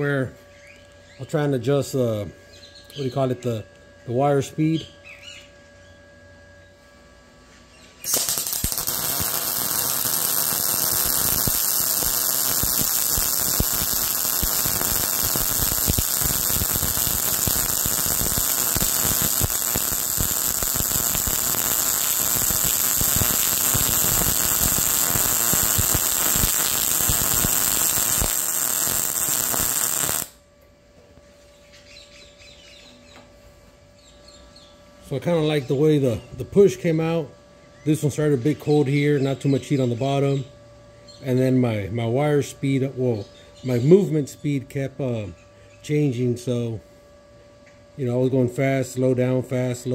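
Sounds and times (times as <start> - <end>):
faint steady hum: 0.0 - 49.9
welding arc crackling: 8.0 - 30.4.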